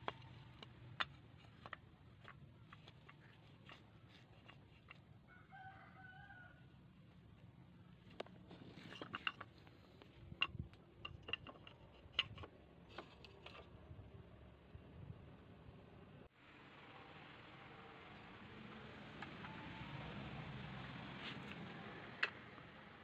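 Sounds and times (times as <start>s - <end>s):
rooster crowing: 5.2s - 6.7s.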